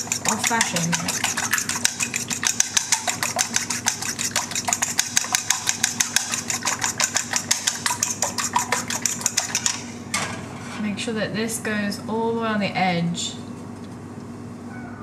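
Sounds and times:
fork clicking against bowl: 0.0s - 9.9s.

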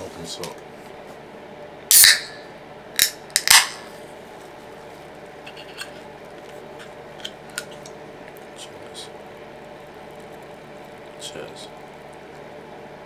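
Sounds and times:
gas hissing from can: 1.9s - 2.2s
can ring-pull cracking open: 1.9s - 2.3s, 3.0s - 3.8s.

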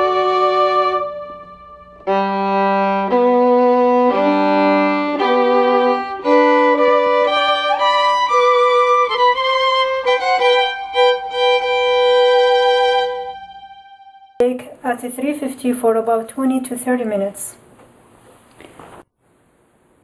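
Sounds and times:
solo violin melody: 0.0s - 14.4s.

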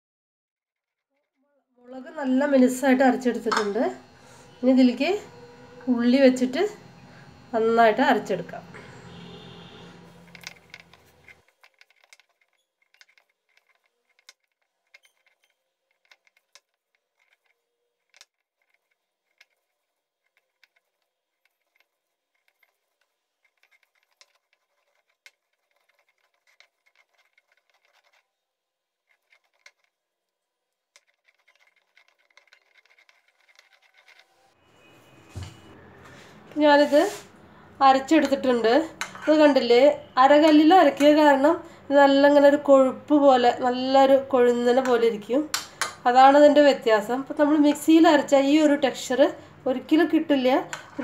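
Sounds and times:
stone roller grinding shallots: 9.8s - 28.4s, 29.1s - 30.0s, 30.9s - 34.6s.

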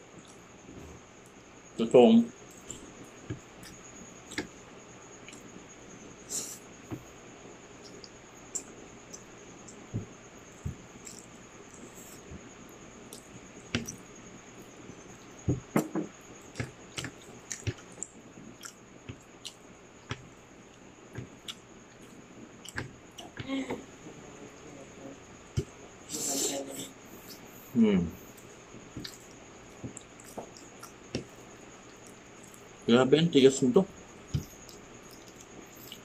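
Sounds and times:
chewing crispy rice: 16.4s - 19.6s, 28.4s - 32.8s, 34.4s - 36.0s.

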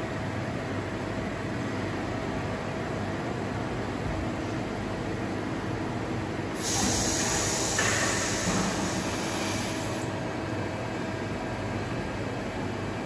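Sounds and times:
hiss: 6.6s - 10.1s
milling machine hum: 6.6s - 12.3s.

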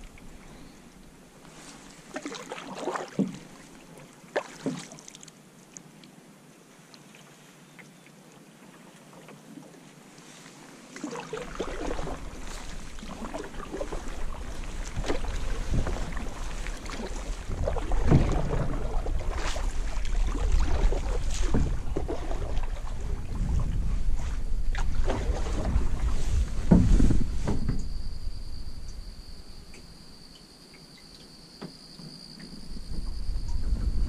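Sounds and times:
paddle dipping through water: 0.0s - 6.2s, 6.8s - 29.0s
paddle knocks against canoe: 2.2s - 3.6s, 4.4s - 4.9s, 11.5s - 23.8s, 24.7s - 27.9s
wind rumble on microphone: 11.4s - 30.0s, 32.4s - 34.0s.

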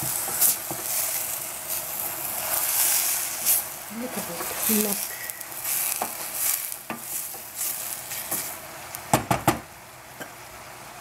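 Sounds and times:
wooden spoon scraping a pan: 0.0s - 8.6s
cabbage sizzling in a pan: 0.0s - 10.8s
sharp knocks: 9.1s - 9.6s.

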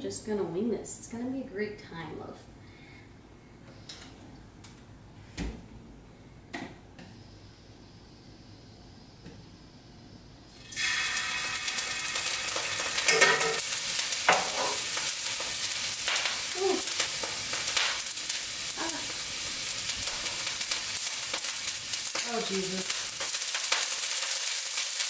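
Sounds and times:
food sizzling in a frying pan: 10.5s - 25.0s
utensil scraping in a pan: 10.6s - 25.0s.

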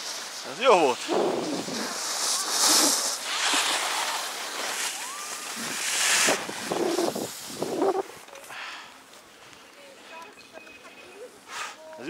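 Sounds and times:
skis scraping and hissing on snow: 0.0s - 9.4s, 11.4s - 11.9s
wind on microphone: 1.0s - 2.9s, 5.5s - 8.2s.

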